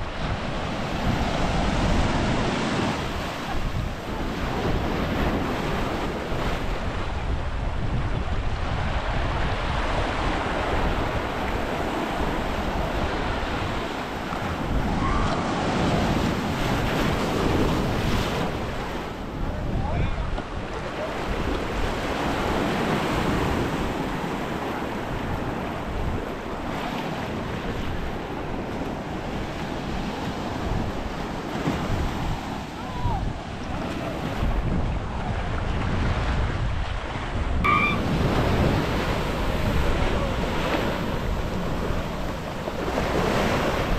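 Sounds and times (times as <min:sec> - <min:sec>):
waves breaking on beach: 0:00.0 - 0:43.9
wind buffeting microphone: 0:00.0 - 0:43.9
short high-pitched tone: 0:37.7 - 0:38.2.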